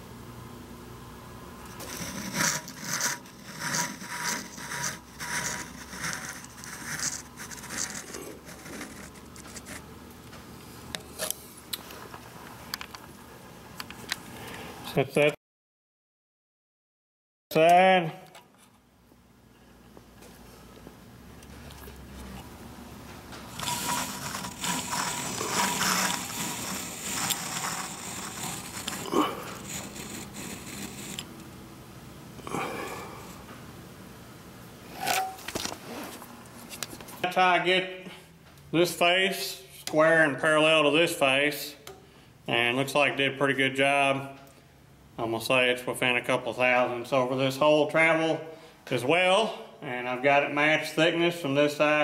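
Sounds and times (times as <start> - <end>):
calipers scraping along metal edge: 1.7 - 9.8, 23.5 - 31.3.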